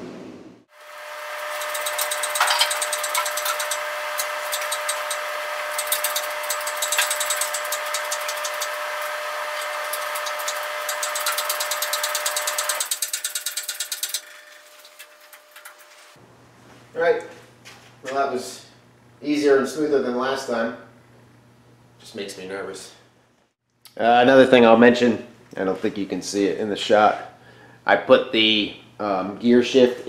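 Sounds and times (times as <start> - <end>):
steady whine: 0.0 - 17.3
rapid clicking and rattling: 1.5 - 8.9, 9.6 - 16.1.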